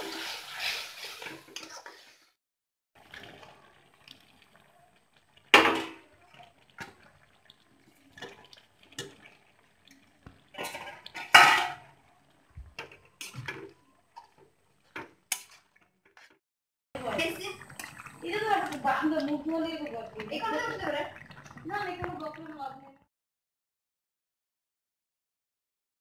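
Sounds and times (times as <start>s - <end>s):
utensil scraping cooking pan: 0.0s - 2.3s, 7.9s - 12.0s.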